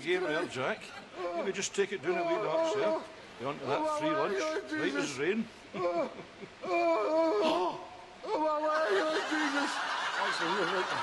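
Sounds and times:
man moaning and wailing: 1.2s - 5.1s, 5.7s - 9.8s.

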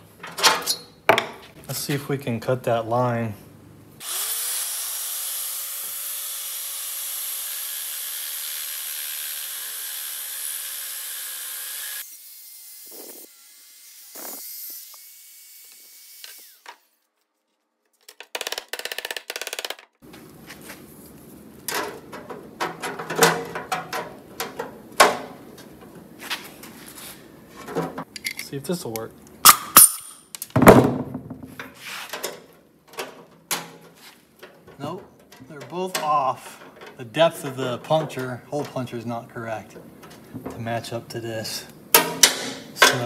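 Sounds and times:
air-powered cutting tool: 4.0s - 16.9s.

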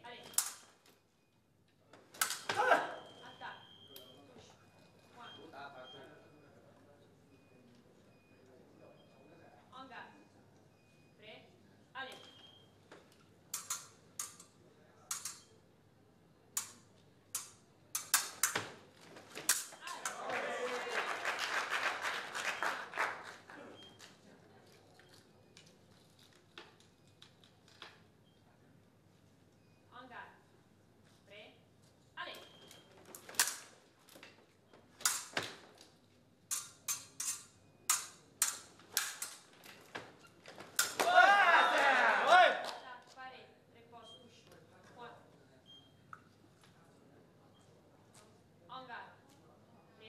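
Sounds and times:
sabre blades clinking: 36.5s - 39.5s, 40.8s - 41.0s.

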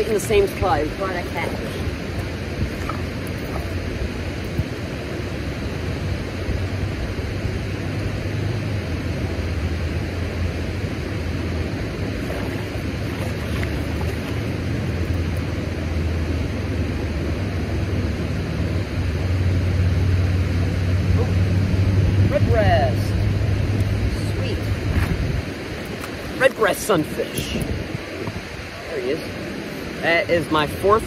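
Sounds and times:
turbulent water rushing: 0.0s - 31.0s.

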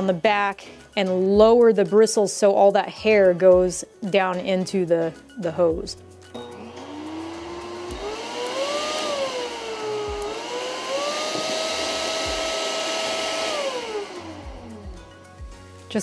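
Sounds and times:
vacuum motor whine: 6.4s - 15.2s.

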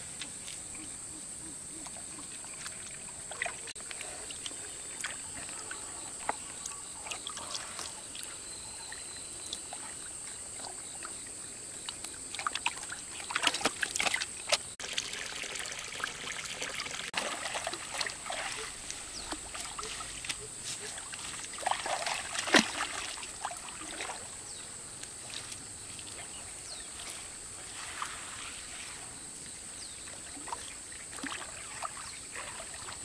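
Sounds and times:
water dripping and splashing: 2.0s - 24.3s, 30.1s - 33.0s.

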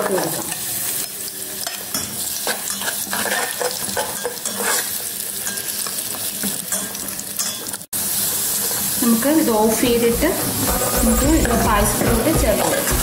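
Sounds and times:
nuts sizzling in hot ghee: 0.0s - 13.0s
spatula scraping: 1.6s - 6.0s, 10.4s - 13.0s.

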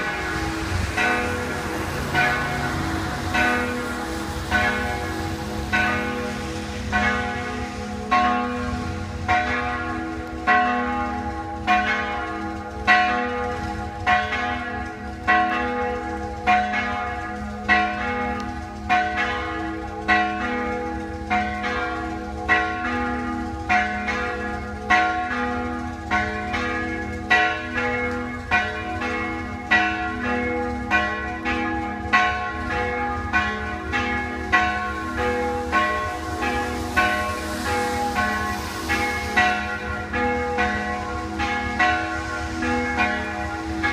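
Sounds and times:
church bells ringing: 0.0s - 43.9s.

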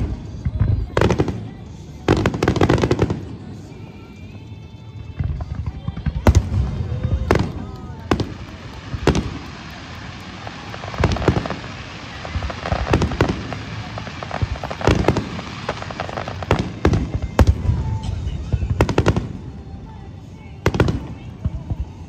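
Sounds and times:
firework shells bursting: 5.2s - 19.6s.

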